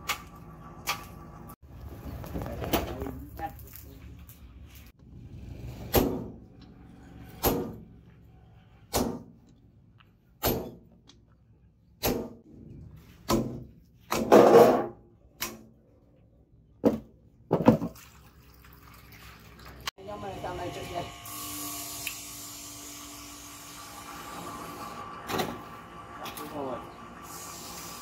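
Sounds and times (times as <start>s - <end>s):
hammer striking hot steel: 5.8s - 6.4s, 7.3s - 7.8s, 8.9s - 9.3s, 10.4s - 10.8s.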